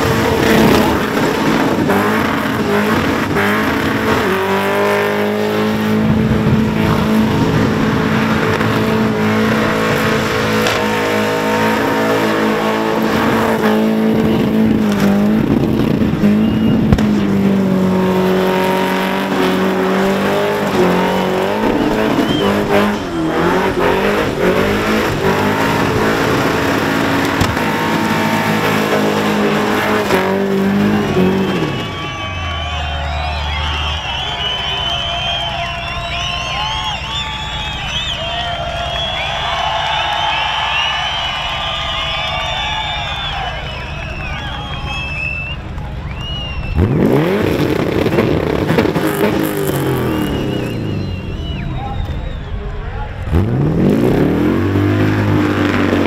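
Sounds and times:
car engine revving high: 0:00.0 - 0:56.0
tyres spinning on pavement: 0:19.3 - 0:52.8.

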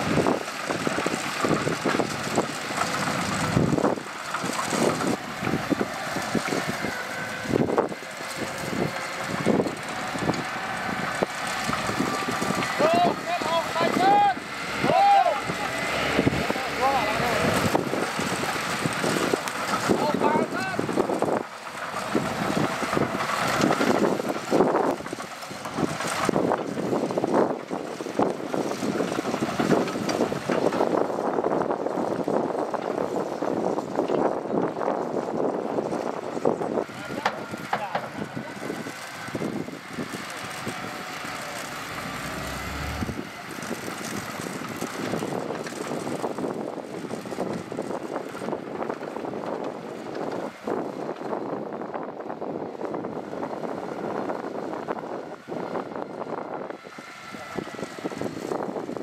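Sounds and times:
diesel machinery running: 0:00.0 - 0:59.0
wind on microphone: 0:22.0 - 0:49.6
deep low hum: 0:41.7 - 0:43.4.

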